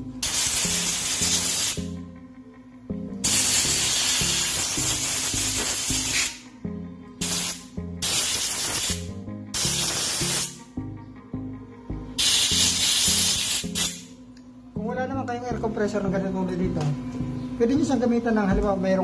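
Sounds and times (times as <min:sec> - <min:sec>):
background music: 0:00.0 - 0:19.0
compressed air blow gun hissing: 0:00.2 - 0:01.9, 0:03.2 - 0:06.4, 0:07.2 - 0:10.6, 0:12.2 - 0:14.1.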